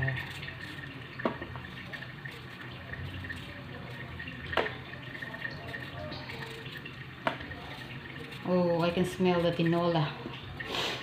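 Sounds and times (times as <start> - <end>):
pot bubbling: 0.0 - 11.0
knife paring potato skin: 0.1 - 10.0.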